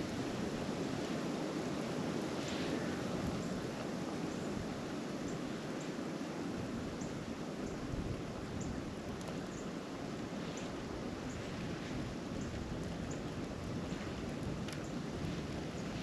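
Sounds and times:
blizzard wind rushing: 0.0 - 16.0
faint light ticks: 8.6 - 9.8, 10.5 - 16.0.

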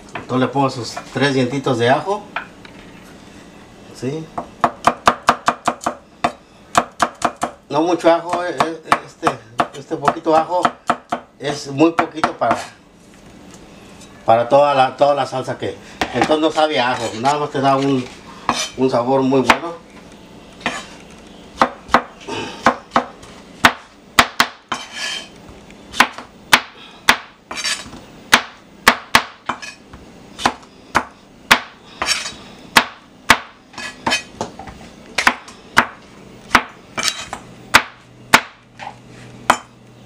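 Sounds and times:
knife chopping on cutting board: 18.5 - 18.7, 20.6 - 20.9, 21.6 - 25.3, 25.9 - 29.8, 30.4 - 34.5, 35.2 - 38.9.

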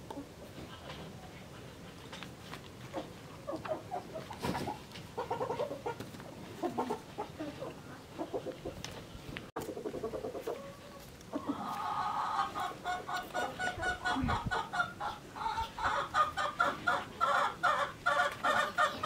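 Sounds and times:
chickens clucking: 0.0 - 19.0
chicken drawn-out call: 9.6 - 19.0.

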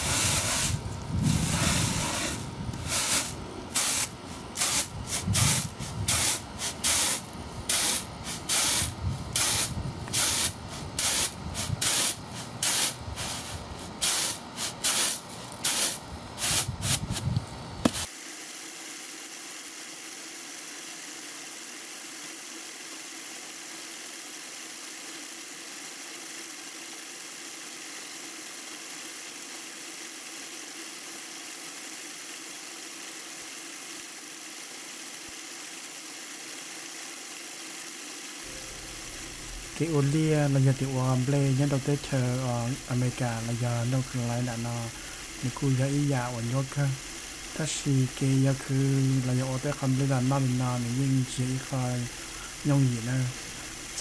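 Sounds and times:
faint hiss and hum: 0.0 - 18.4, 38.4 - 54.0.

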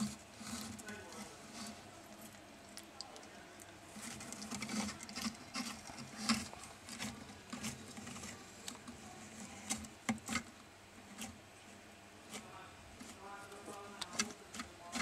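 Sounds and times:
lizard chewing wet clicks: 1.6 - 8.8.

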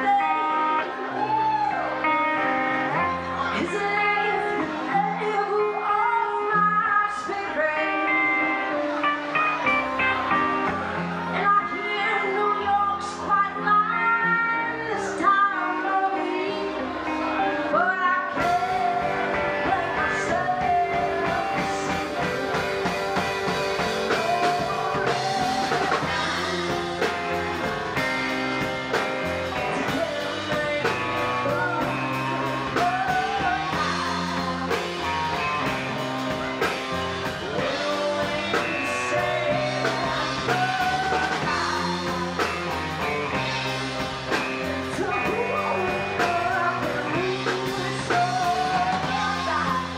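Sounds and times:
bass: 0.0 - 49.9
electric guitar: 0.0 - 49.9
keyboards: 0.0 - 49.9
woman singing: 0.0 - 49.9
drums and cymbals: 18.4 - 49.9.

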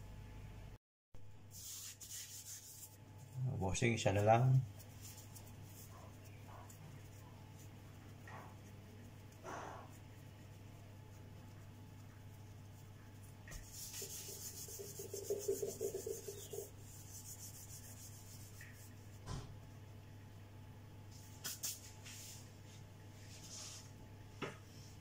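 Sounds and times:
low steady hum: 0.0 - 25.0
dough rubbing on countertop: 1.5 - 19.6, 21.1 - 24.0.

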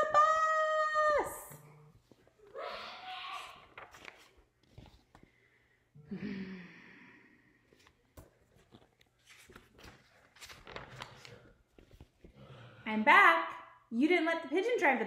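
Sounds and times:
book pages turning: 3.5 - 5.5, 7.7 - 12.4
person sighing: 6.0 - 7.4.

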